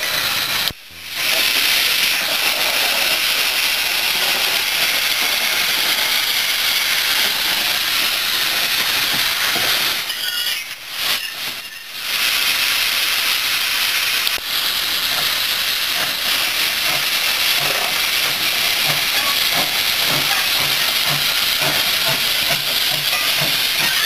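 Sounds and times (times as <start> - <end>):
steam locomotive hissing steam: 0.0 - 24.0
low regular locomotive beat: 14.8 - 24.0.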